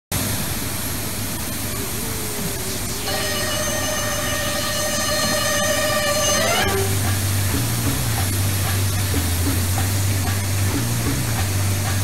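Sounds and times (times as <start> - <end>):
steady high whine: 0.4 - 12.0
jet aircraft roar: 1.6 - 8.4.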